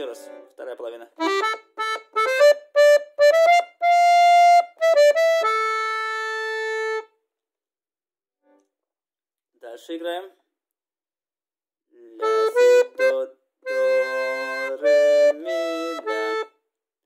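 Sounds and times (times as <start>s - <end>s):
button accordion melody: 0.0s - 0.6s, 1.2s - 7.2s, 12.1s - 16.6s.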